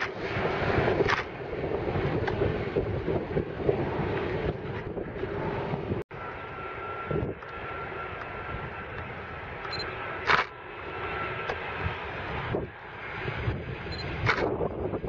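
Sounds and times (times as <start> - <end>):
jet airliner climbing: 0.0 - 15.0
jet airliner engine whine: 0.0 - 15.0.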